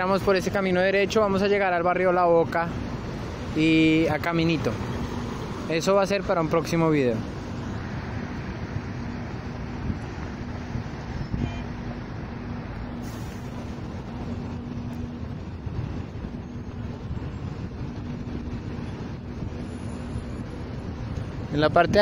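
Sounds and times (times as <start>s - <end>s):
road noise: 0.0s - 22.0s
low engine drone: 6.7s - 21.5s.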